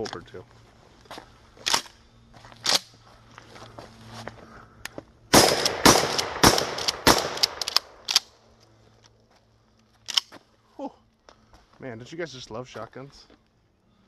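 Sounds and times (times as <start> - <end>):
shotgun shots: 5.3 - 8.2
gun action clicks: 5.4 - 8.4, 10.1 - 10.3.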